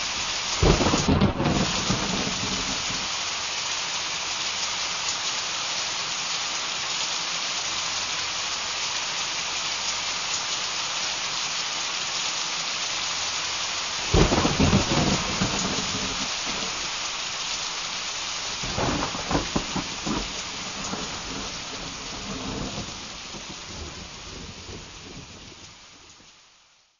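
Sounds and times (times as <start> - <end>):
heavy rain hissing: 0.0 - 26.9
thunder cracking and rumbling: 0.6 - 3.1, 14.1 - 16.9, 18.6 - 25.6.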